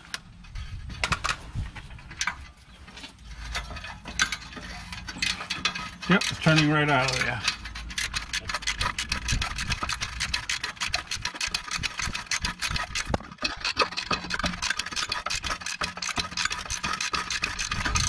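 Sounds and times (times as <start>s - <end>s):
ratchet wrench clicking: 6.2s - 18.0s.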